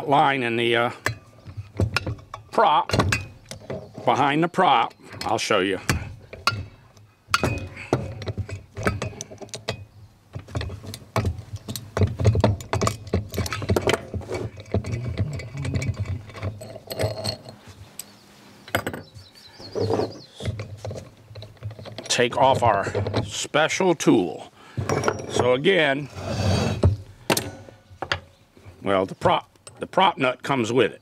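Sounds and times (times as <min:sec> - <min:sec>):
metal tool clinking and rattling: 0:01.0 - 0:18.1, 0:18.7 - 0:23.4, 0:24.8 - 0:25.7.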